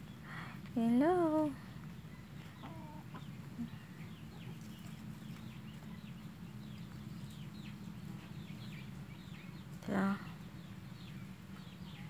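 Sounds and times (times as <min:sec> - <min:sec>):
steady low hum: 0:00.0 - 0:12.0
chicken clucking: 0:01.9 - 0:09.0.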